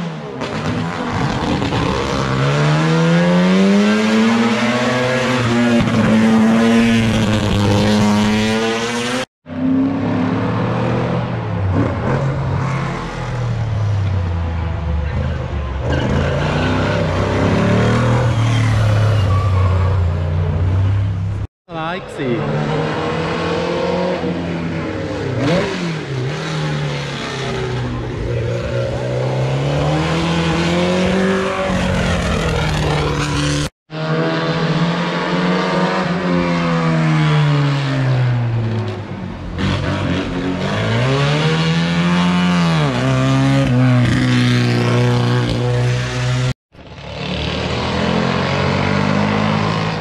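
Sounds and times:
racing car engines accelerating: 22.0 - 50.0.

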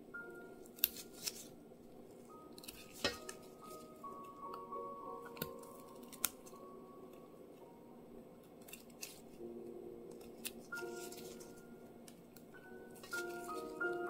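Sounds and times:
soft background music: 0.0 - 14.0
knife cutting chestnut shells: 0.6 - 1.6, 2.4 - 7.2, 8.4 - 9.4, 10.1 - 14.0.

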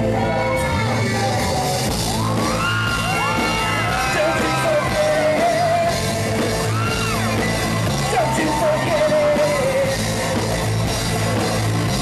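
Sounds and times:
drums: 0.0 - 12.0
man singing and shouting: 3.3 - 10.4.

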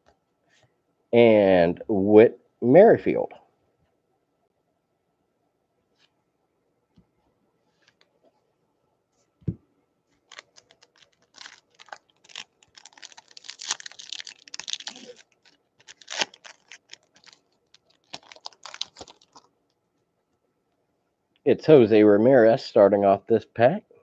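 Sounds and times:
wrapper crackling and tearing: 10.2 - 19.5.

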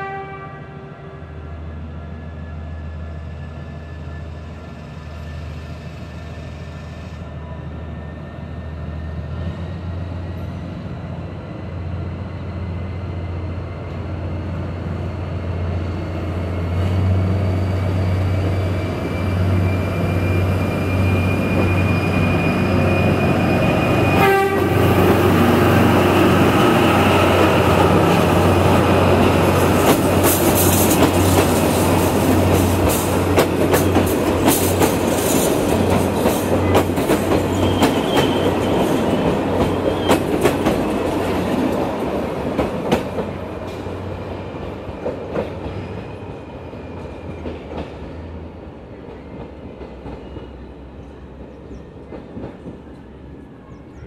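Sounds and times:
locomotive horn: 0.0 - 1.3, 23.3 - 25.8
locomotive engine drone: 0.5 - 47.6.

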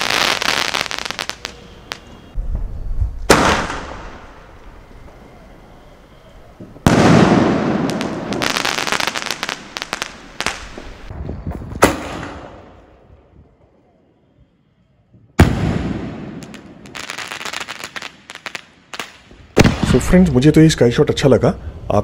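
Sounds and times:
firework crackling: 0.0 - 12.9, 15.4 - 20.1
firework bangs: 0.0 - 13.1, 15.3 - 20.2
sharp crack: 3.2 - 5.2, 6.8 - 11.2, 11.8 - 12.8.

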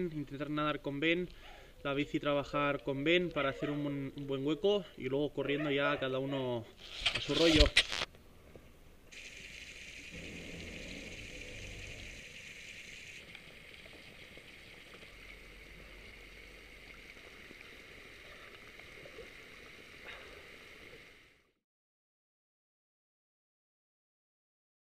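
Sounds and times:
garden hose spraying water: 9.1 - 21.2.

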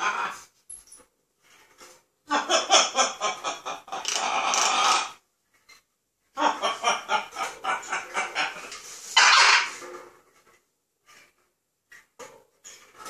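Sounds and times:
parrot imitating laughter: 2.3 - 5.2.

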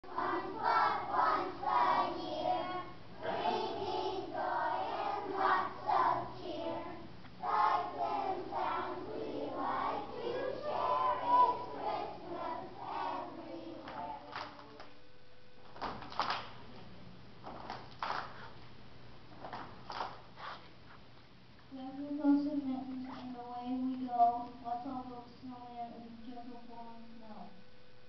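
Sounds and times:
children's choir singing: 0.0 - 14.6.

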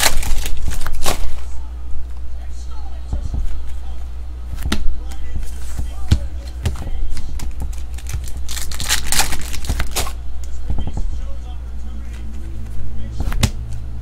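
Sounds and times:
foil pack tearing open: 0.0 - 1.4, 7.7 - 10.2.

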